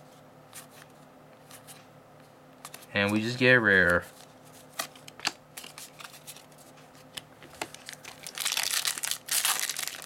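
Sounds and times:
foil wrapper crinkling: 7.7 - 10.0.

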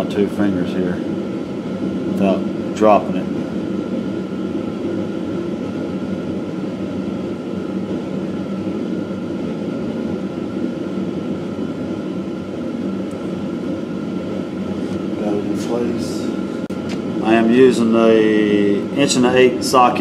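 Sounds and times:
faint steady whine: 0.0 - 20.0
fan machine droning: 0.0 - 20.0.

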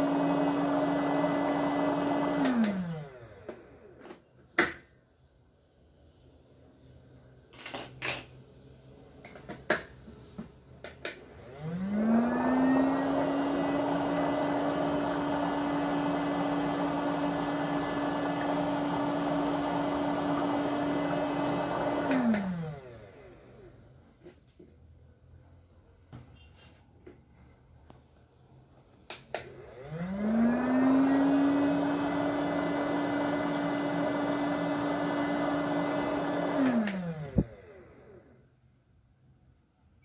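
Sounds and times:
footbath motor humming: 11.4 - 23.6, 29.7 - 38.0.

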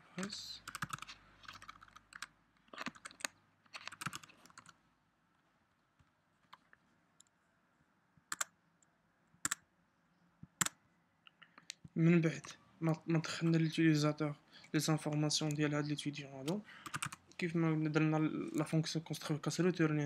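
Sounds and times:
keyboard typing: 0.6 - 4.8, 8.3 - 8.6, 16.4 - 17.4
loud keyboard clicks: 0.7 - 4.8, 16.8 - 17.2.

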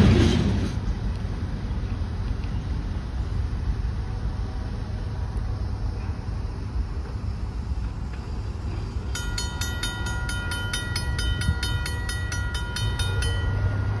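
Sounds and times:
railroad crossing bell ringing: 9.0 - 14.0.

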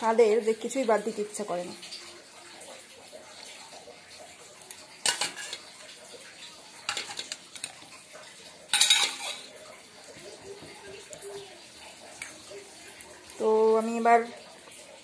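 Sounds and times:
steel bowls clinking and clattering: 5.0 - 5.9, 6.8 - 8.0, 8.7 - 13.0.

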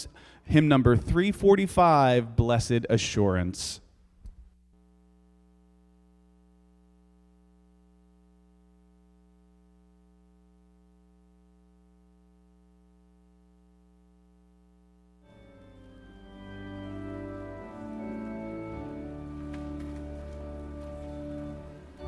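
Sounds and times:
faint steady hum: 1.9 - 22.0
music: 15.2 - 22.0.

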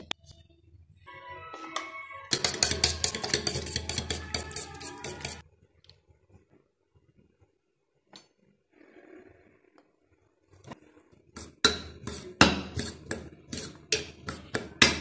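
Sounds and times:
fork whisking egg in metal bowl: 2.3 - 5.5, 11.4 - 15.0.

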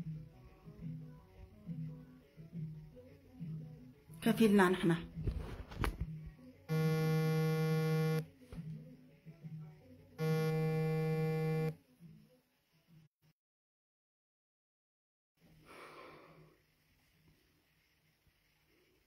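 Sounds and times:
electronic buzzing tone: 6.7 - 8.2, 10.2 - 11.8.

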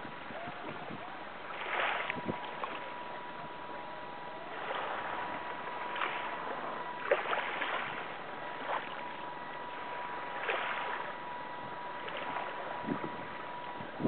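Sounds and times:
faint high steady tone: 0.0 - 14.0
water lapping against boat hull: 0.0 - 14.0.

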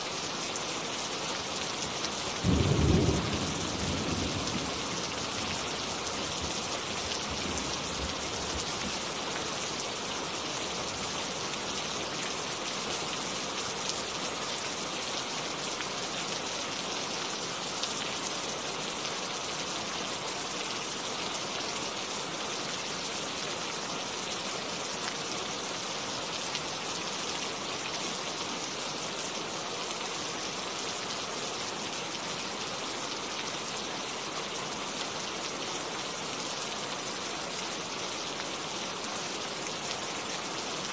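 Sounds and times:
steady rain falling: 0.0 - 40.9.

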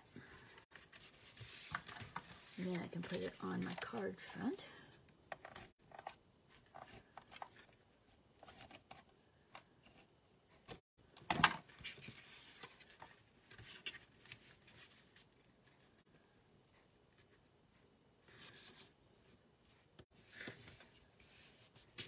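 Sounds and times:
paper rustling: 0.3 - 4.0.

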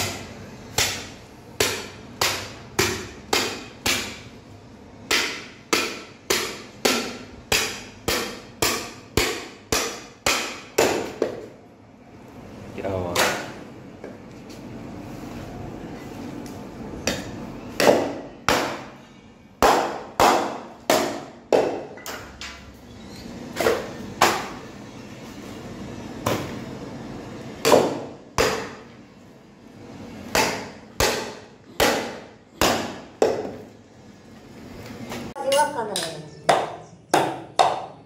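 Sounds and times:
cleaver chopping on wooden block: 27.6 - 28.8.

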